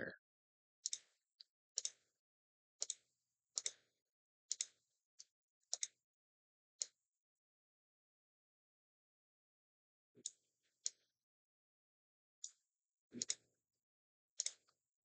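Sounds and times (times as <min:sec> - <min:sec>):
computer mouse clicking: 0:00.8 - 0:01.2, 0:01.8 - 0:02.0, 0:02.8 - 0:03.0, 0:03.6 - 0:03.9, 0:04.5 - 0:06.0, 0:13.2 - 0:13.4, 0:14.4 - 0:14.8.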